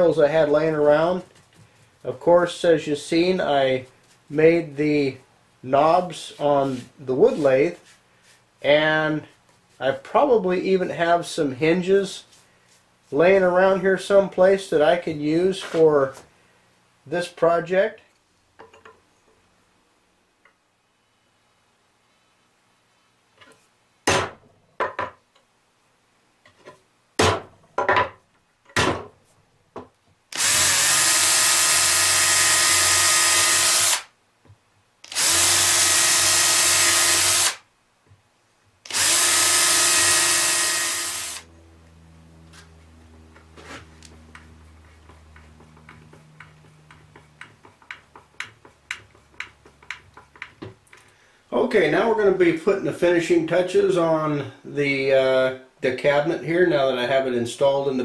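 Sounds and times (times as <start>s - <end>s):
power drill running: 30.3s - 34.1s, 35.0s - 37.6s, 38.9s - 41.5s
sharp taps: 43.3s - 51.0s.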